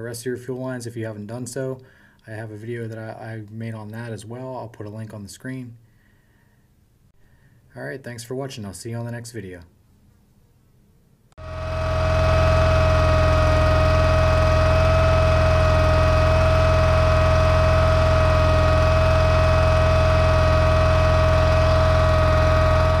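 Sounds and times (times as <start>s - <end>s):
lawn tractor engine running: 11.4s - 23.0s
steady whine: 11.4s - 23.0s.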